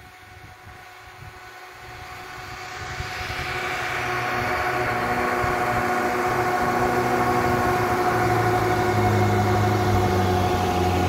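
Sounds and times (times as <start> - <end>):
car engine under load: 4.1 - 11.0.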